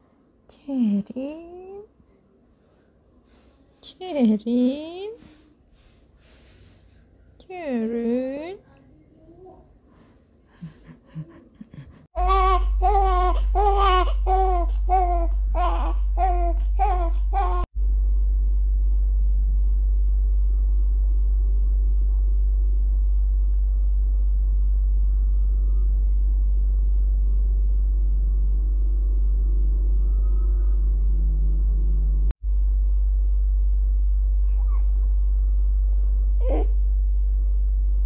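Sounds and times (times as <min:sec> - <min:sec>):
steady low hum: 0:00.0 - 0:38.0
rhythmic laugh-like voiced sounds: 0:10.5 - 0:12.2.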